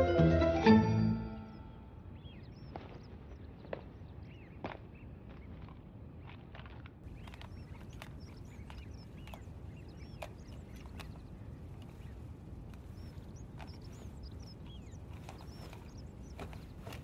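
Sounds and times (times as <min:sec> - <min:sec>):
birds chirping: 0:00.0 - 0:17.0
sharp clicking bird calls: 0:02.0 - 0:17.0
low background rumble: 0:06.9 - 0:17.0.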